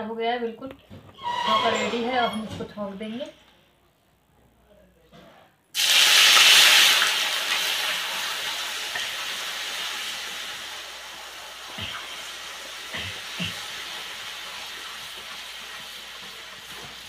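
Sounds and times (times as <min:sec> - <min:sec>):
spices sizzling in hot oil: 0:05.8 - 0:17.0.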